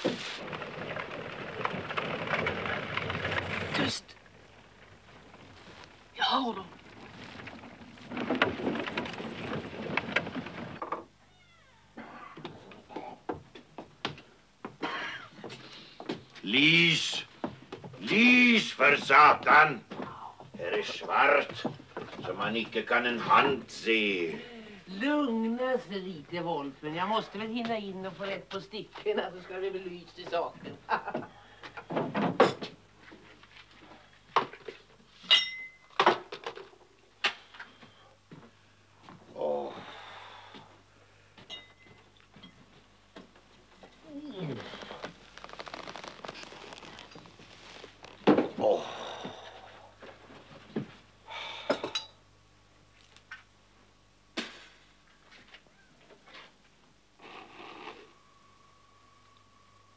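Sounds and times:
hooves and cart wheels clattering: 0.0 - 10.9
knocks and footsteps: 0.0 - 11.2, 12.4 - 23.0
ringing metallic clink: 35.3 - 35.9, 41.5 - 41.9.

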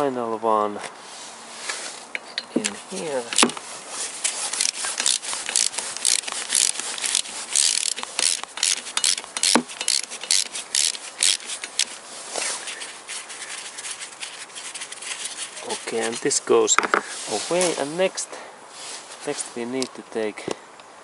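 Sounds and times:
gloves scraping metal: 1.0 - 18.0
ratchet clicking: 4.2 - 12.0.

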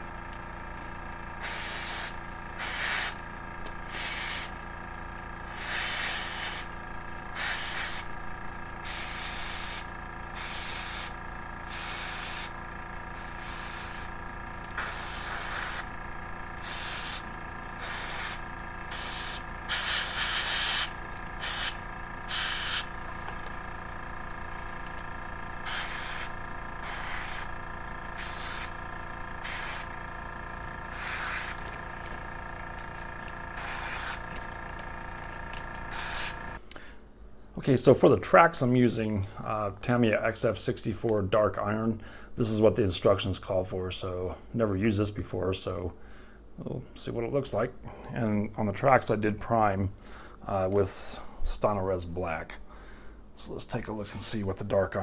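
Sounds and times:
steady background hum: 0.0 - 55.0
airbrush spraying hiss: 1.4 - 3.2, 3.8 - 4.6, 5.5 - 6.7, 7.3 - 8.1, 8.8 - 14.1, 14.8 - 15.9, 16.6 - 23.2, 25.6 - 27.5, 28.1 - 28.7, 29.4 - 29.9, 30.9 - 32.0, 33.6 - 34.4, 35.9 - 36.6.

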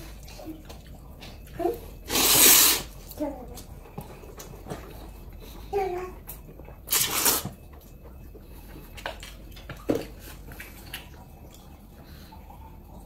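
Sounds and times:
person slurping noodles: 2.1 - 2.9, 6.9 - 7.4
wet eating smacks: 6.3 - 11.8.

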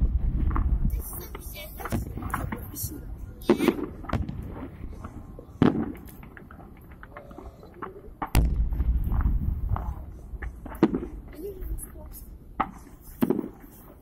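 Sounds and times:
firework crackling: 0.0 - 14.0
firework shells bursting: 0.0 - 14.0.

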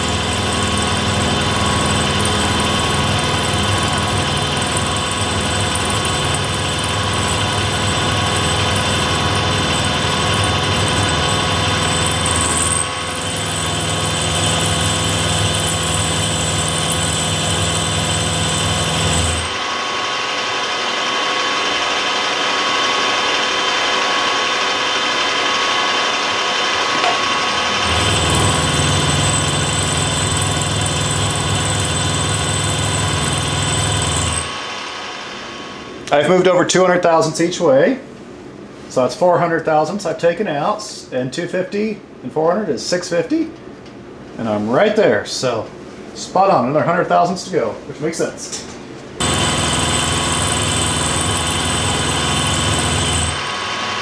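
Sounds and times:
milling machine cutting metal: 0.0 - 35.8, 49.2 - 54.0
low motor hum: 26.6 - 36.1.

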